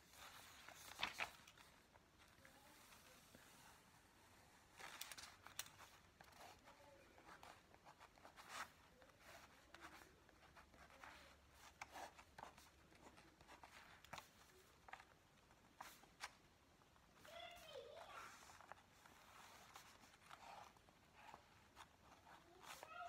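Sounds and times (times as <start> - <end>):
pen scratching on paper: 5.8 - 15.0, 18.2 - 22.9.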